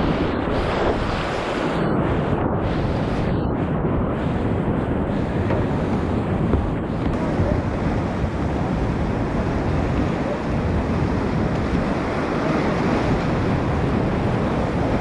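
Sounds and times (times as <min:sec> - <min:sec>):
wind buffeting microphone: 0:00.0 - 0:15.0
whitewater rapids rushing: 0:06.9 - 0:15.0.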